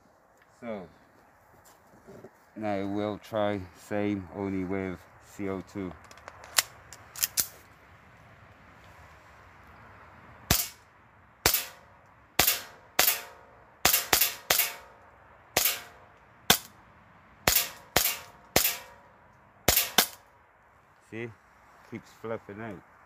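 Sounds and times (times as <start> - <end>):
airsoft pistol shots: 10.5 - 10.8, 11.4 - 11.8, 12.4 - 14.9, 15.6 - 16.7, 17.5 - 19.0, 19.7 - 20.2.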